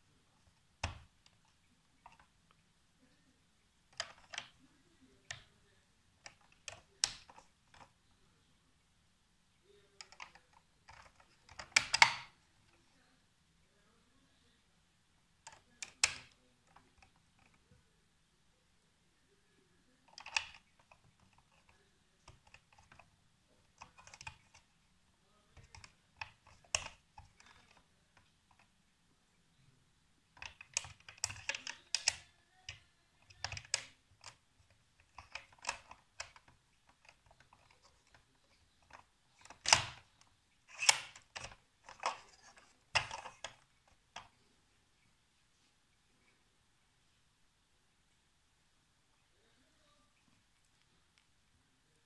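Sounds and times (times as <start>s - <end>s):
plastic toy parts clicking: 3.9s - 4.6s, 6.2s - 7.9s, 10.0s - 12.4s, 15.4s - 17.6s, 20.0s - 24.7s, 25.6s - 28.7s, 30.4s - 44.4s
sharp plastic snaps: 3.9s - 4.6s, 10.0s - 12.4s, 15.4s - 17.6s, 20.0s - 23.1s, 23.7s - 24.7s, 25.6s - 28.7s, 30.3s - 44.4s.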